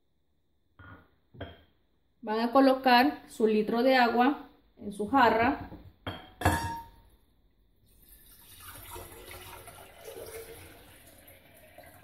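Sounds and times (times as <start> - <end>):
water pouring into pitcher: 7.8 - 12.0.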